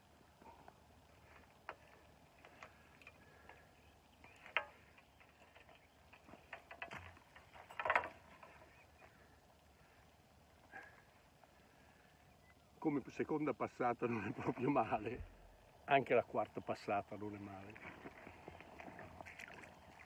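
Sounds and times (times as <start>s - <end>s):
handling clicks and knocks: 4.4s - 8.7s.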